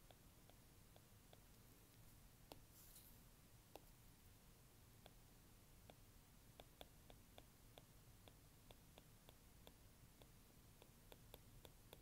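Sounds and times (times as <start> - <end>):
stylus tapping on tablet: 0.0 - 1.6, 2.4 - 2.7, 5.8 - 12.0.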